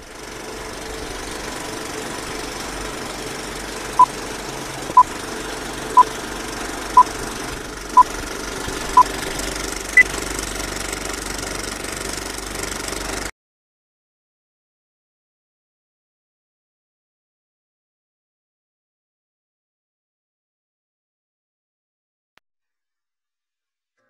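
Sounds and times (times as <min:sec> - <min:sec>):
film projector clattering: 0:00.0 - 0:13.3.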